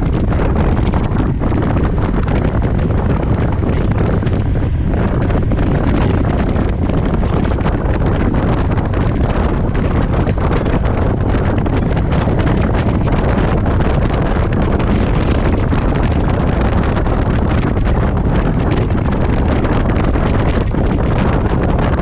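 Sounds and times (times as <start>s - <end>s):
motorcycle engine and road rumble: 0.0s - 22.0s
wind buffeting microphone: 0.0s - 22.0s.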